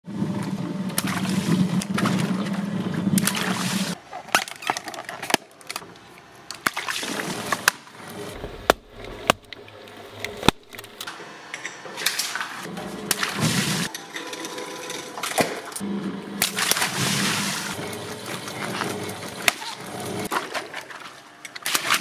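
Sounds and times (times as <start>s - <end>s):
shredder machine humming: 15.8s - 20.3s
water splashing over shredder cutters: 16.4s - 20.2s.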